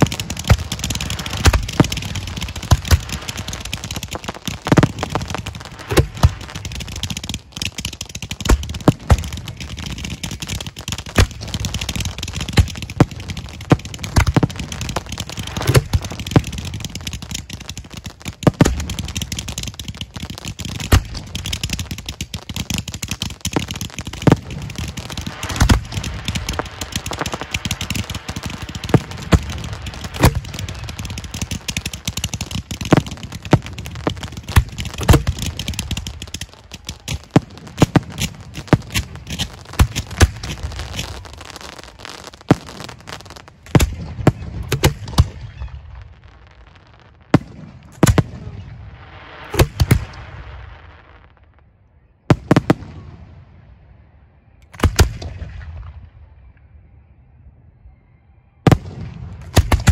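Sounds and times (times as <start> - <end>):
fireworks mortar launch thumps: 0.0 - 46.2.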